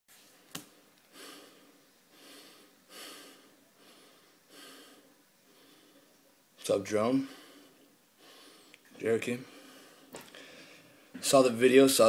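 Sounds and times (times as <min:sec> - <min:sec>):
man breathing through nose: 0:01.1 - 0:06.1, 0:07.2 - 0:11.1.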